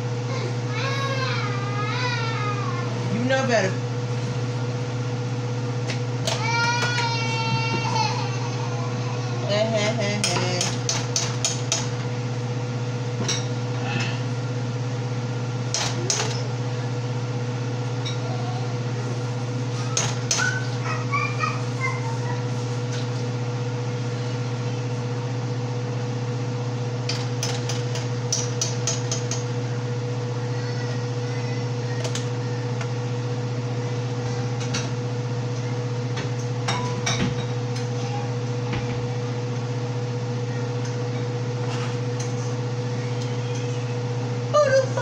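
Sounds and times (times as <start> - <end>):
kitchen appliance motor humming: 0.0 - 45.0
utensils clinking against dishes: 9.8 - 12.0, 15.7 - 16.6, 27.1 - 29.5, 36.4 - 38.0.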